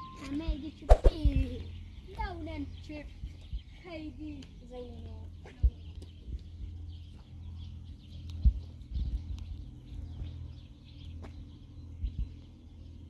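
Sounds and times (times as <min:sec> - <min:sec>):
birds chirping faintly: 0:00.0 - 0:13.0
steady low rumble: 0:00.0 - 0:13.0
dull low thumps: 0:05.1 - 0:10.5.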